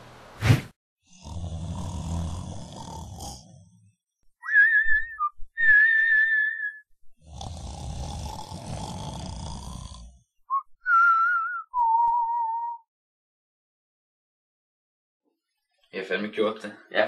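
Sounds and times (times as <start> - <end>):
comic snoring: 0.4 - 4.1, 7.1 - 10.4
wavering whistled notes: 4.4 - 6.8, 10.5 - 12.8.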